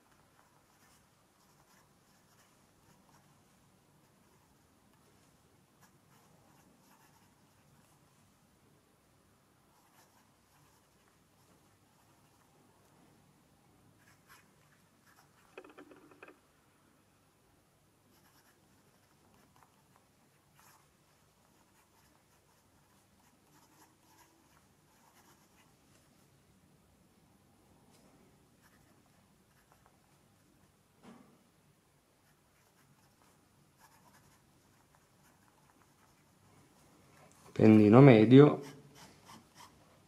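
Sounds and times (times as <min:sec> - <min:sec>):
fountain pen scratching on paper: 0:00.0 - 0:03.4, 0:04.0 - 0:08.0, 0:09.8 - 0:12.5, 0:18.1 - 0:25.7, 0:32.2 - 0:36.4, 0:38.6 - 0:39.8.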